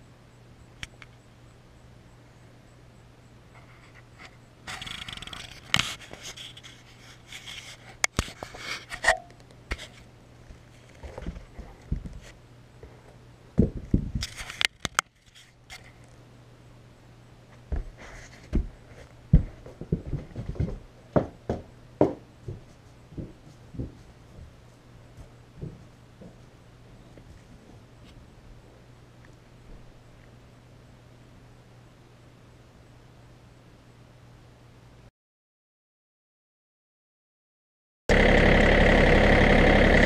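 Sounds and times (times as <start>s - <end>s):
camera handling scraping and rustling: 3.6s - 12.4s, 14.2s - 16.2s.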